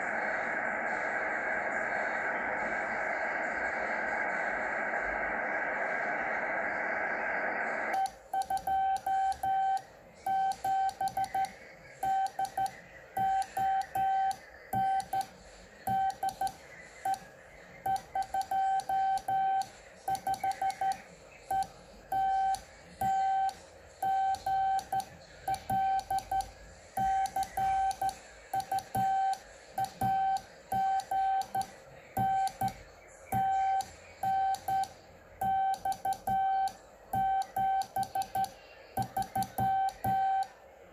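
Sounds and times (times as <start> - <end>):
receiver noise hiss: 0.0 - 40.9
morse code tone: 8.0 - 15.3, 15.9 - 40.5.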